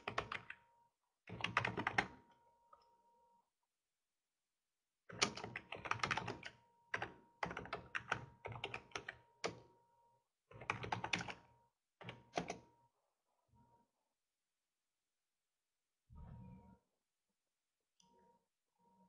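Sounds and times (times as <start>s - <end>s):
computer keyboard typing: 0.0s - 0.6s, 1.3s - 2.2s, 5.1s - 9.6s, 10.5s - 12.6s.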